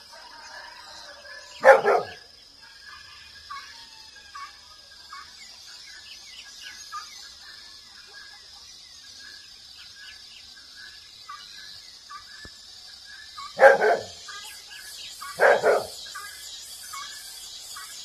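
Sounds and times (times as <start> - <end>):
dog barking: 1.6 - 2.2, 13.6 - 14.2, 15.4 - 16.0.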